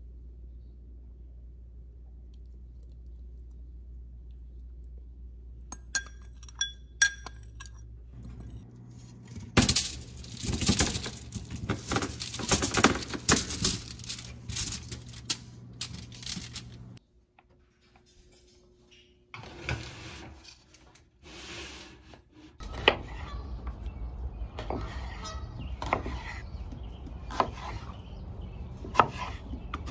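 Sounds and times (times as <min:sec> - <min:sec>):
metal utensils clinking and scraping: 0:06.0 - 0:17.0.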